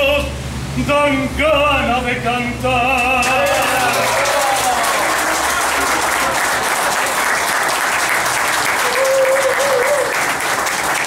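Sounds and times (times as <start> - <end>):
people applauding: 3.2 - 11.0.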